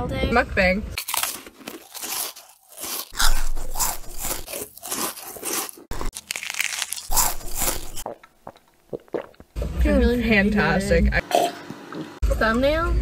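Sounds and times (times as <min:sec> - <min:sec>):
people chewing crunchy food: 0:01.0 - 0:09.6.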